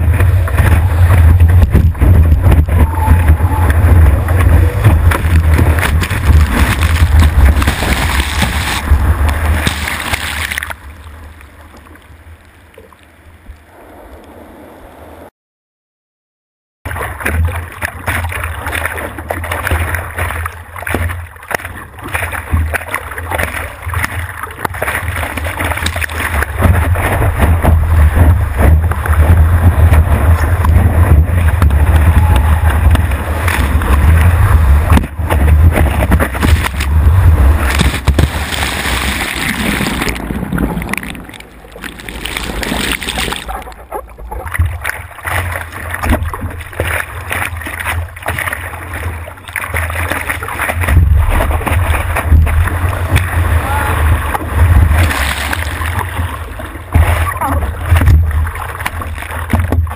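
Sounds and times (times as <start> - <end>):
wind rumble on microphone: 0.0 - 10.2, 24.7 - 48.4, 50.7 - 59.9
water rushing and splashing: 0.0 - 15.3, 16.9 - 59.9.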